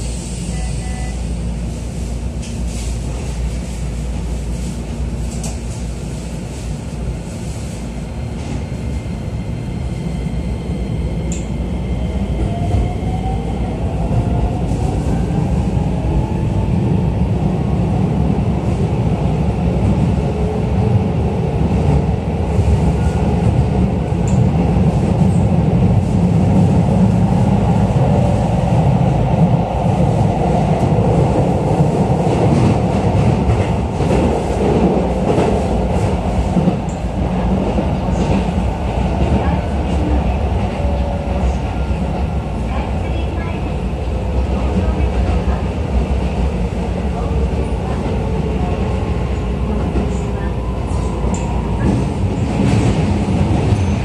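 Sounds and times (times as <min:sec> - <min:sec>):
wheels rumbling on rail: 0:00.0 - 0:54.0.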